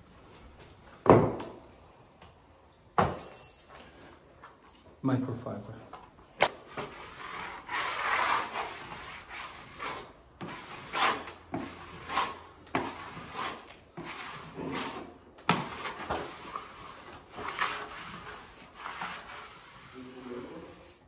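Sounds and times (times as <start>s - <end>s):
cloth rubbing on wallpaper: 15.7s - 21.0s.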